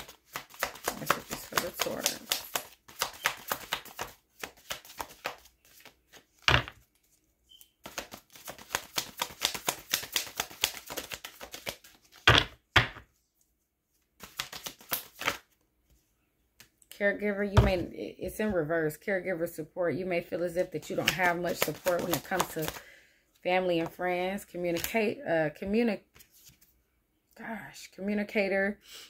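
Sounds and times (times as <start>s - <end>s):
cards being shuffled: 0.0s - 13.0s, 13.9s - 16.0s, 20.6s - 22.8s, 26.1s - 26.7s
card deck thumps: 6.4s - 6.8s, 7.9s - 13.1s.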